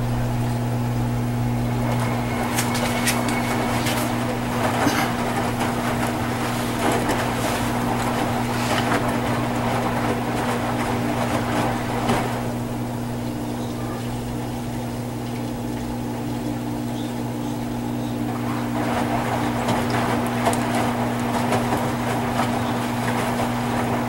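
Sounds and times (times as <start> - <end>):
washing machine motor hum: 0.0 - 24.0
water swishing in washing machine: 0.0 - 24.0.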